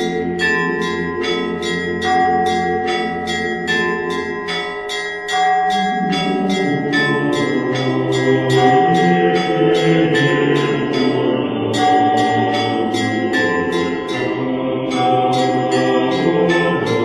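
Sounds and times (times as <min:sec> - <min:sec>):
church bells pealing: 0:00.0 - 0:17.0.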